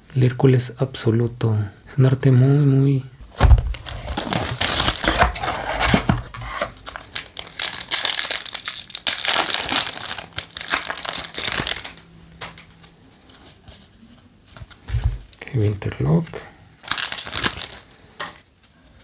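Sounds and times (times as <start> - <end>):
foil pack crinkling: 3.3 - 12.9, 16.8 - 18.5
shrink wrap crinkling and tearing: 3.6 - 13.0, 16.8 - 18.5.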